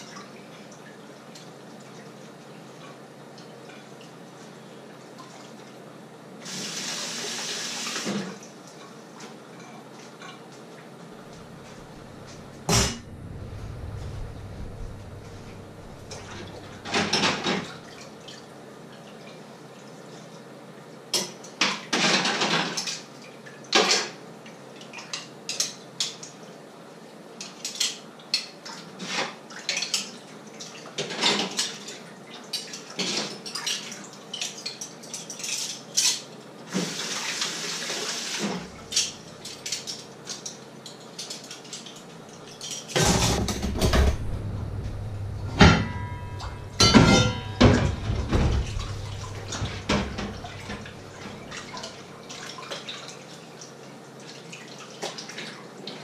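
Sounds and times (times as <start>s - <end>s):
dishes clattering in a sink: 9.2s - 18.1s, 21.1s - 23.1s, 23.7s - 24.2s, 27.4s - 37.1s, 38.5s - 53.0s
water running: 10.8s - 18.5s, 43.4s - 56.0s.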